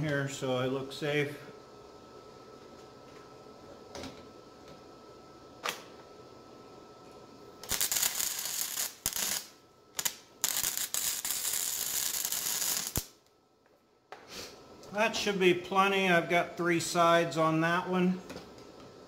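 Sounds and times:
welder arc crackling: 7.6 - 13.4.

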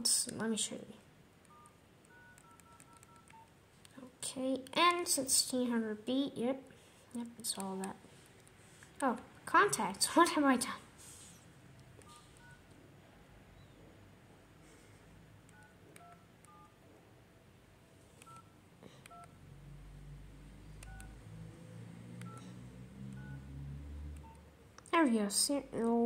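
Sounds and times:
faint keypad beeps: 1.4 - 3.6, 12.0 - 12.8, 13.5 - 13.9, 15.5 - 16.8, 18.2 - 19.4, 20.7 - 21.2, 22.2 - 23.5, 24.2 - 24.5.

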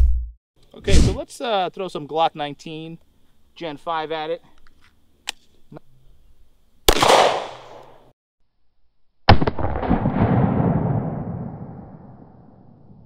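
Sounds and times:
pistol shot: 6.9 - 8.0, 9.3 - 11.5
sharp bang with rumbling tail: 9.3 - 13.0.

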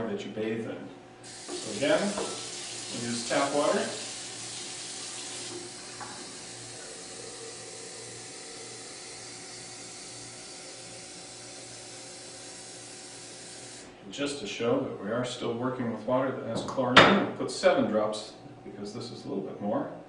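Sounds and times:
tap water running into glass: 1.3 - 13.8.

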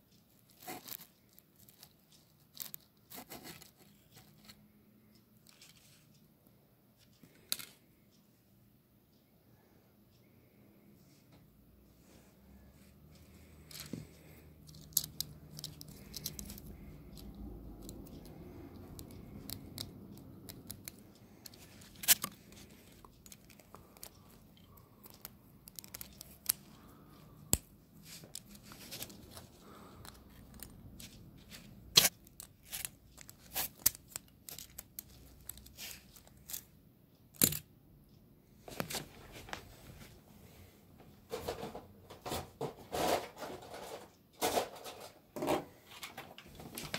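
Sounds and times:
plastic parts clicking and snapping: 13.7 - 37.7.

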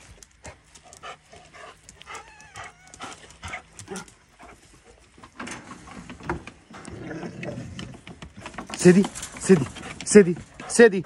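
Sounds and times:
rustling: 0.0 - 10.9
dog whimpering: 2.0 - 3.4
footsteps: 7.8 - 11.0.

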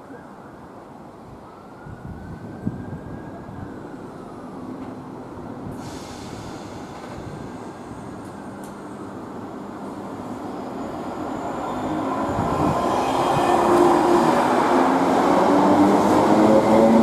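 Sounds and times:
electric train rumbling: 4.0 - 17.0
hiss: 5.7 - 8.1.

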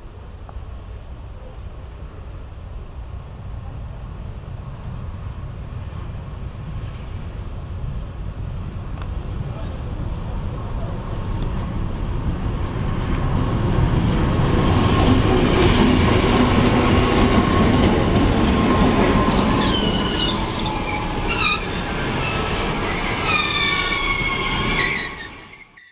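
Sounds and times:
diesel locomotive passing: 0.0 - 25.9
train coaches rolling past: 0.0 - 25.9
wheels squealing: 16.8 - 25.9.

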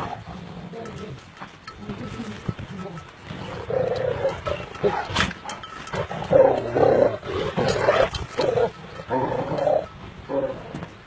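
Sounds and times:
dogs growling: 3.4 - 10.9.

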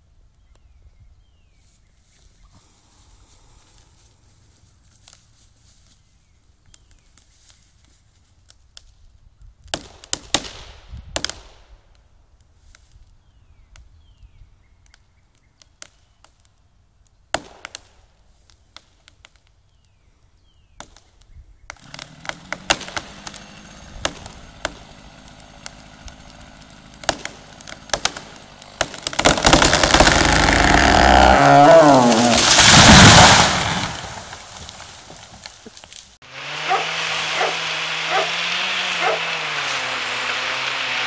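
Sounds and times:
tree trunk crashing to ground: 21.7 - 36.2
wood cracking: 21.7 - 41.0
tree crown rushing down: 21.8 - 41.0.

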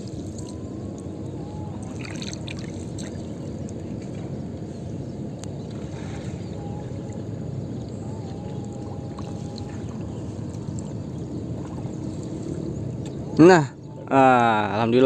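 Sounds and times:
low rumble: 0.0 - 14.1
water dripping and splashing: 1.8 - 4.3, 9.2 - 13.2.

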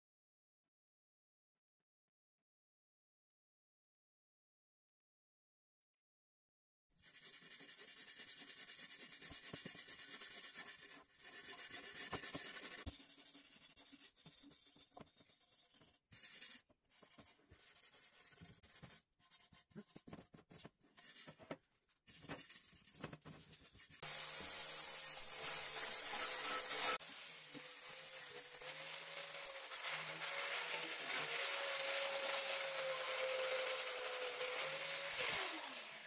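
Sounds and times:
wire brush scrubbing metal: 24.0 - 36.0.

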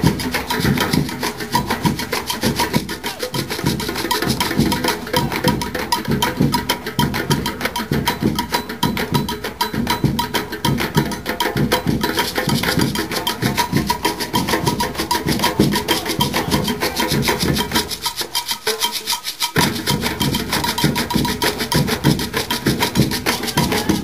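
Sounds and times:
hand drums playing: 0.0 - 24.0
sharp clicking strokes: 12.0 - 23.7.

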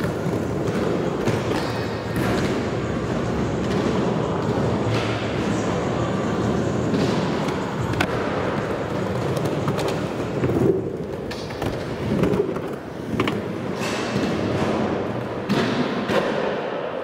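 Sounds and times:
skateboard wheels rumbling: 7.6 - 13.7.

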